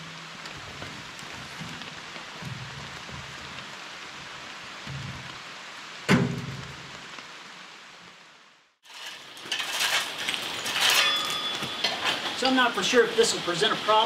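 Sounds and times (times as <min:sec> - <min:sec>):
steady outdoor hiss: 0:00.0 - 0:14.0
shovel scraping concrete rubble: 0:08.8 - 0:12.7
sharp metal clank: 0:09.4 - 0:12.4.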